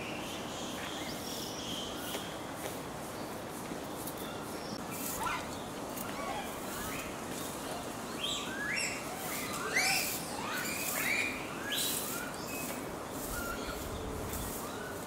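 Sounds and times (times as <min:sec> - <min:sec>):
monkeys giving coo calls: 0:05.0 - 0:13.9.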